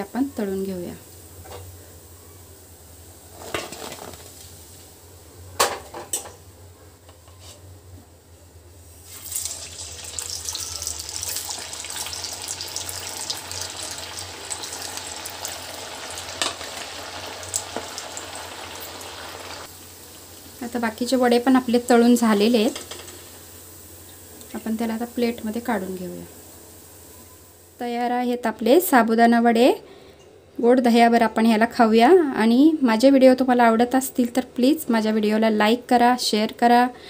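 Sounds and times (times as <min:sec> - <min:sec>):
oil sizzling and bubbling: 0:00.0 - 0:06.4, 0:08.7 - 0:28.0.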